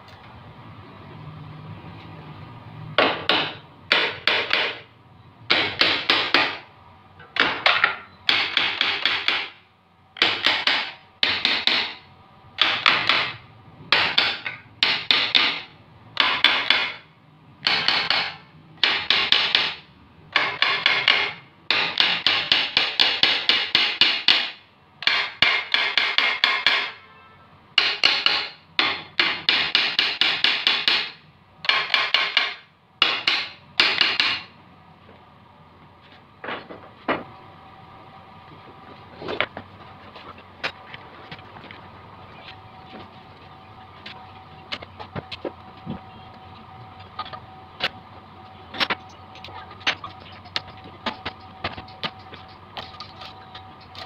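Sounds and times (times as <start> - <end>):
hammer tapping on metal: 3.0 - 4.8, 7.2 - 9.6, 17.6 - 27.0, 27.8 - 34.5.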